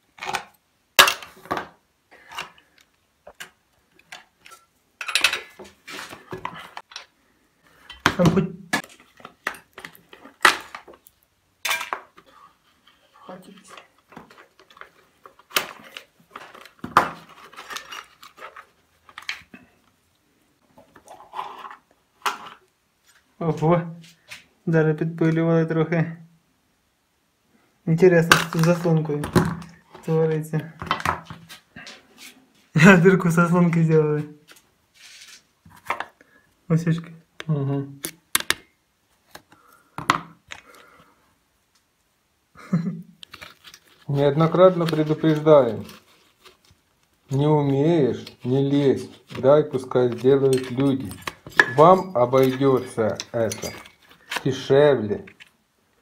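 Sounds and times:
metal tools clinking: 4.5s - 5.6s, 50.4s - 54.2s.

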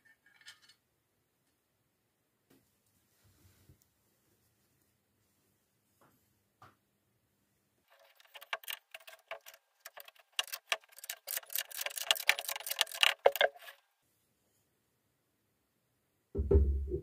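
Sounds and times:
metal linkage clicking and rattling: 7.9s - 13.8s.

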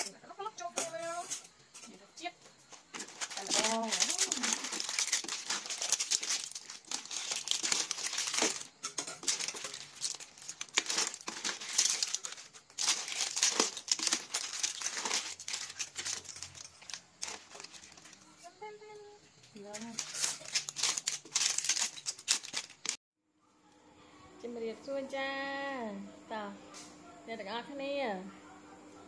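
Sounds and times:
plastic glove crinkling: 2.8s - 18.5s, 19.6s - 23.0s.

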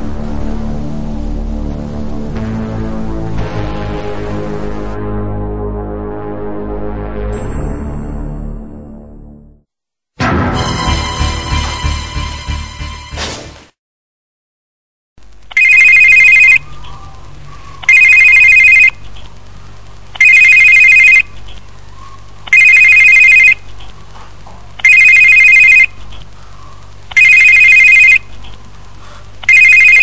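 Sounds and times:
faint steady hum: 15.2s - 30.0s
telephone ringing two-tone trill: 15.5s - 16.6s, 17.9s - 19.0s, 20.2s - 21.3s, 22.5s - 23.6s, 24.8s - 26.0s, 27.1s - 28.3s, 29.4s - 30.0s.

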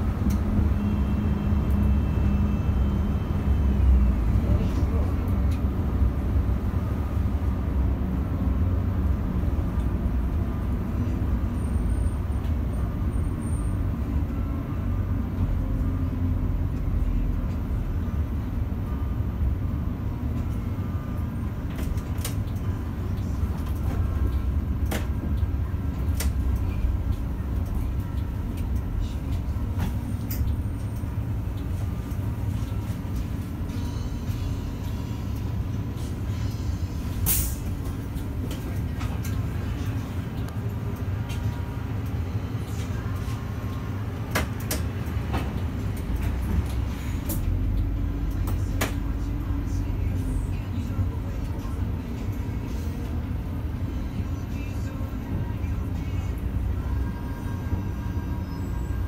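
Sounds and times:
bus engine and road rumble: 0.0s - 59.0s.

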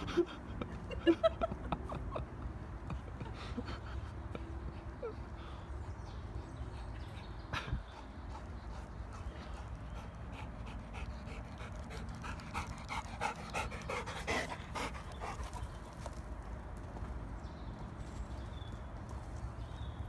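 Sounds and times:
dog panting rapidly: 7.0s - 15.8s.

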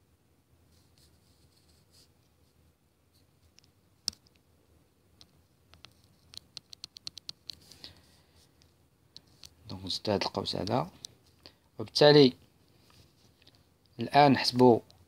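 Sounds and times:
stylus tapping on tablet screen: 5.2s - 7.7s.

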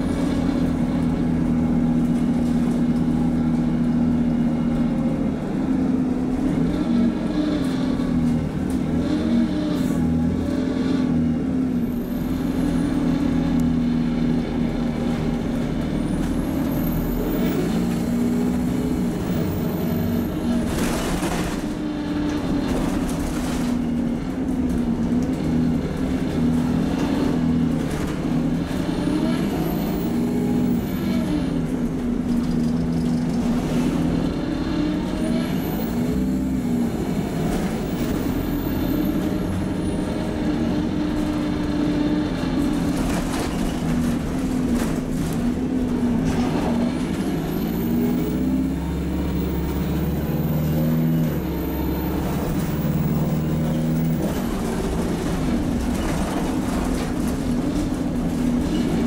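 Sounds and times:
bus engine changing gears: 0.0s - 59.0s.

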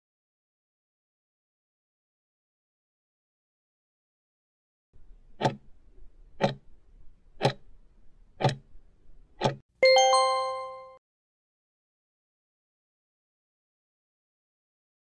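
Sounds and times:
timer ticking: 5.4s - 5.6s, 6.4s - 6.6s, 7.4s - 7.6s, 8.4s - 8.6s, 9.4s - 9.6s
bell-like chime: 9.8s - 11.0s.

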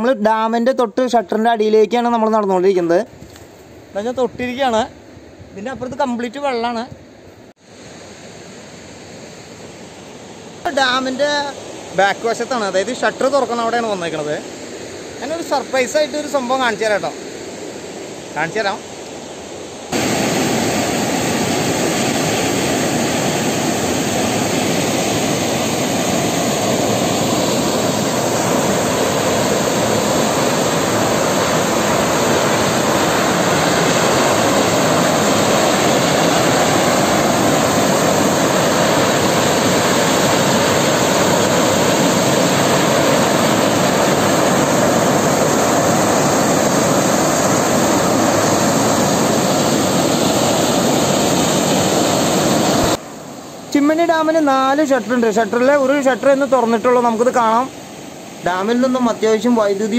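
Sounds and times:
high-pressure water jet rushing: 19.9s - 53.0s.

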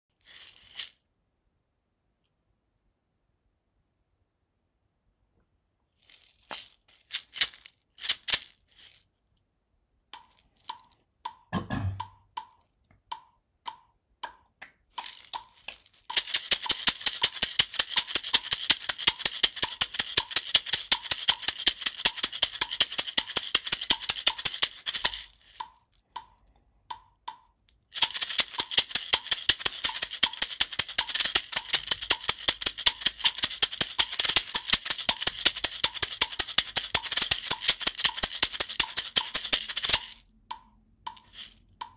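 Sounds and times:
mini maracas shaking: 0.1s - 1.0s, 6.0s - 9.2s, 10.2s - 11.0s, 14.9s - 26.4s, 27.8s - 40.2s, 41.1s - 41.9s.

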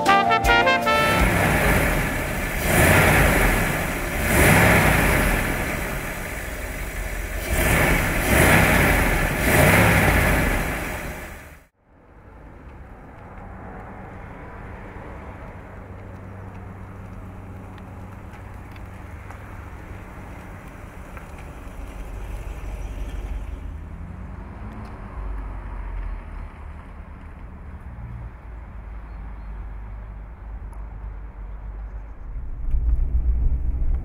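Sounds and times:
car engine low rumble: 0.9s - 27.8s, 30.1s - 34.0s.

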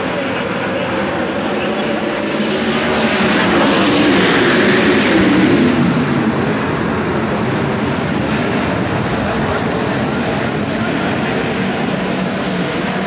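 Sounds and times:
race car engines at full throttle: 0.0s - 13.0s.

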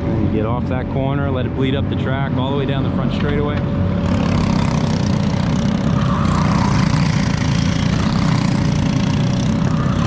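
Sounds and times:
go-kart engines droning: 0.0s - 10.0s
kart accelerating: 3.8s - 10.0s.

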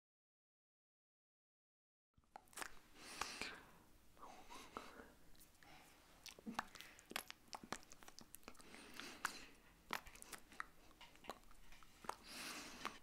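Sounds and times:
mouth clicks and lip smacks: 2.2s - 3.6s, 5.3s - 13.0s.

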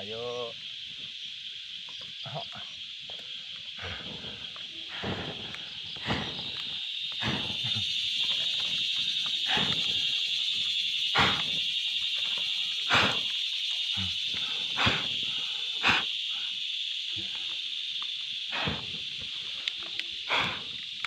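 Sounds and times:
chorus of insects: 0.0s - 21.0s
man blowing on a fire: 4.9s - 10.1s, 11.1s - 11.6s, 12.9s - 13.3s, 13.9s - 16.5s, 18.5s - 19.1s, 20.3s - 20.8s.

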